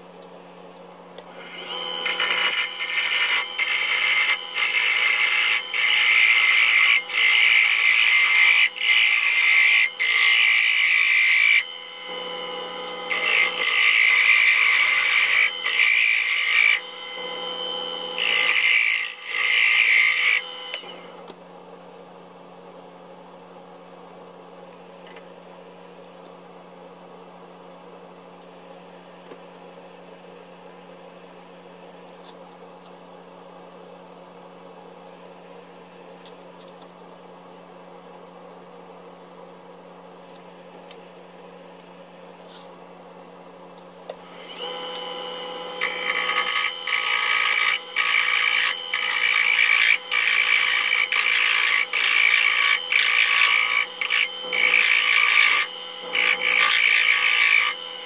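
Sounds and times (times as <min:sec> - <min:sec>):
wood lathe humming: 0:01.2 - 0:21.2, 0:44.2 - 0:58.0.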